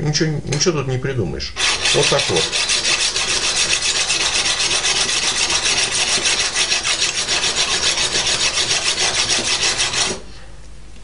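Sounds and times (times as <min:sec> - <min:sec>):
whetstone scraping on knife: 0:01.6 - 0:10.2.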